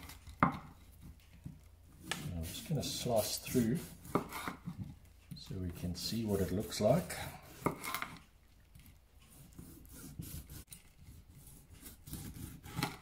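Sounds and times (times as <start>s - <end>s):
knife slicing dried meat: 1.9s - 4.8s, 5.5s - 8.2s, 9.2s - 13.0s.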